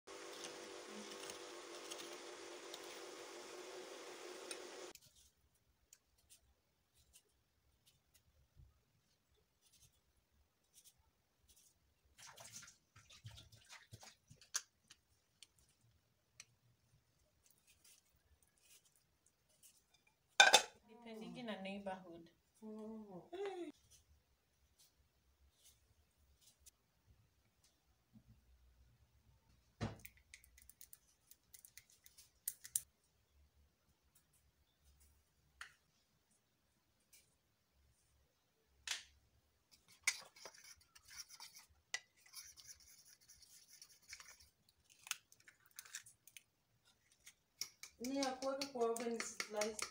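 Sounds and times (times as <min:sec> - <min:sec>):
spice containers clicking: 0:47.5 - 0:49.9.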